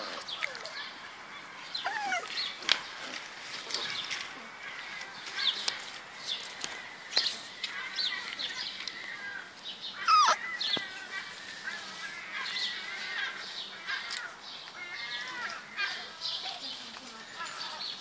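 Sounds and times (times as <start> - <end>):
puppy yelp: 1.8 - 2.3, 10.0 - 10.4
puppies squeaking and yipping: 1.8 - 2.5, 10.0 - 10.5.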